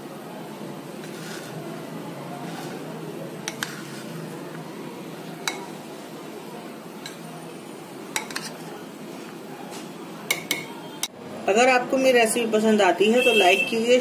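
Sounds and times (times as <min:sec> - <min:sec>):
spoon stirring salad: 0:01.0 - 0:01.7, 0:02.4 - 0:06.1, 0:06.9 - 0:07.4, 0:08.0 - 0:10.8.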